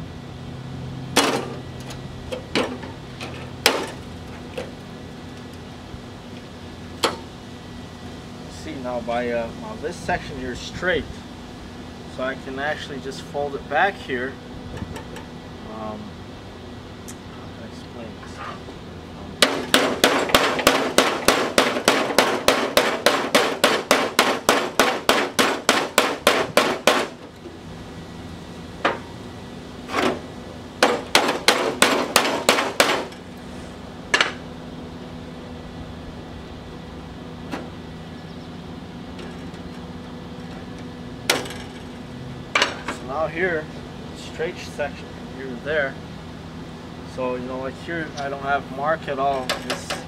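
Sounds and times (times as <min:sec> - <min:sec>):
hammer blows on sheet steel: 0:19.4 - 0:27.2, 0:30.8 - 0:33.2.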